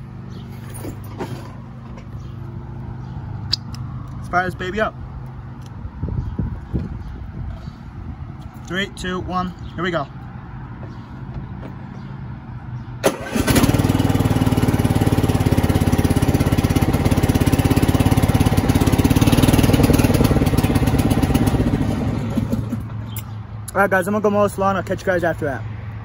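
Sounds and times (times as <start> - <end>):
lawn mower engine starting and running: 0.0 - 4.1, 13.0 - 23.3.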